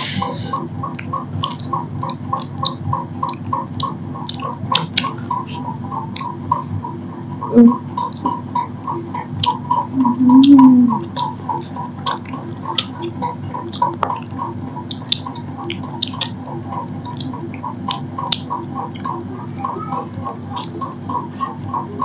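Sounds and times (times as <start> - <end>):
steady pulsing background tone: 0.0 - 22.0
chewing: 0.8 - 6.7, 7.7 - 21.9
low hum rising and falling: 4.0 - 12.4.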